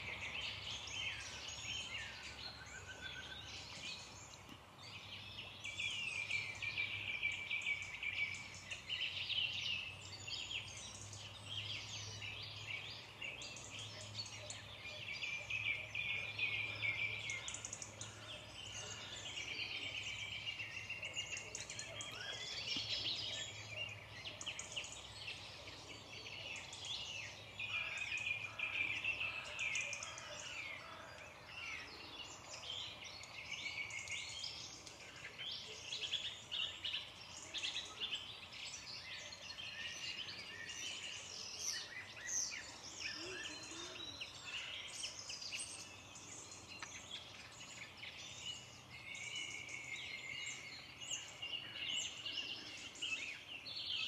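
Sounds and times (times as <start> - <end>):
songbirds singing and calling: 0.0 - 54.0.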